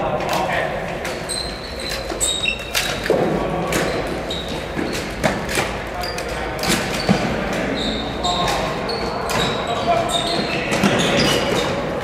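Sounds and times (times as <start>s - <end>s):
sneaker squeaks: 1.0s - 12.0s.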